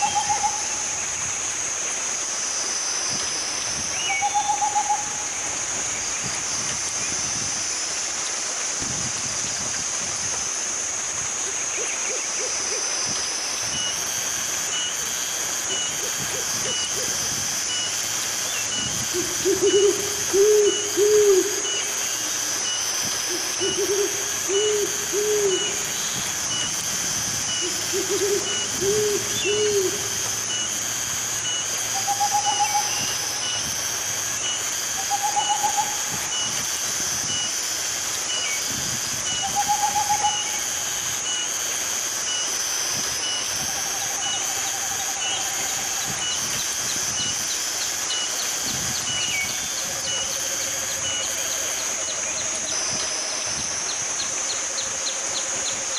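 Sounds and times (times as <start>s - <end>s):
owl hooting: 0.0s - 1.1s, 3.9s - 5.6s, 18.4s - 30.7s, 31.4s - 33.6s, 34.4s - 37.5s, 39.2s - 41.4s, 43.2s - 53.1s
steady high hiss: 0.0s - 55.9s.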